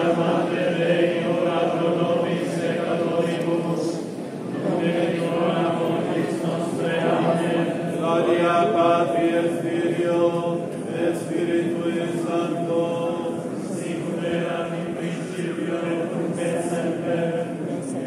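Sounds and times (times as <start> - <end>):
clergy chanting prayer: 0.0 - 18.0.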